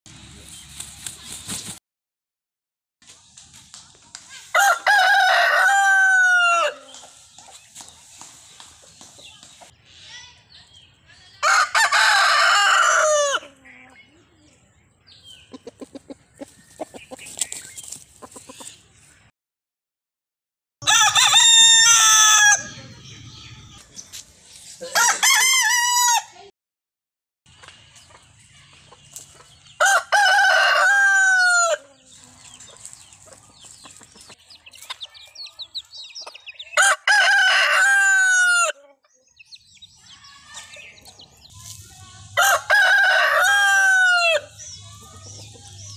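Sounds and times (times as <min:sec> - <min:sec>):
roosters crowing: 0:04.5 - 0:07.1, 0:11.4 - 0:13.6, 0:20.8 - 0:22.9, 0:24.8 - 0:26.4, 0:29.7 - 0:32.1, 0:36.6 - 0:38.8, 0:42.4 - 0:45.9
chicken clucking: 0:15.2 - 0:19.1, 0:27.5 - 0:29.8, 0:31.4 - 0:42.2, 0:42.8 - 0:45.9.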